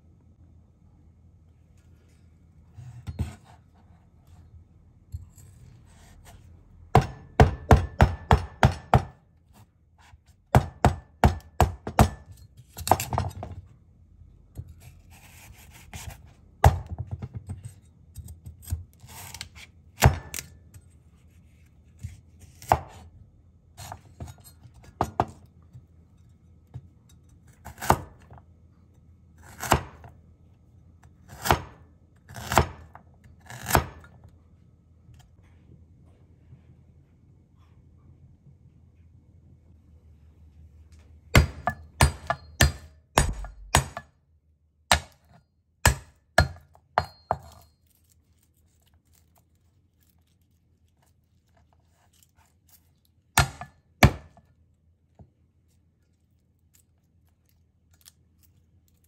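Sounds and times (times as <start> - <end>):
knife chopping carrot on wooden board: 2.8 - 3.6, 6.0 - 13.5, 14.6 - 17.5, 22.0 - 23.1, 27.6 - 28.4, 29.4 - 30.1, 31.2 - 34.1, 41.3 - 44.1, 44.9 - 47.6, 53.4 - 54.4.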